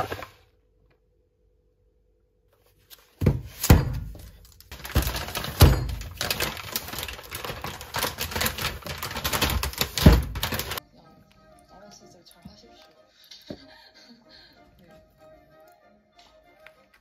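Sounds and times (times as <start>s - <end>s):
plastic wrap crinkling: 2.9s - 10.8s
milk cases thumping on counter: 3.2s - 6.5s, 7.6s - 10.8s.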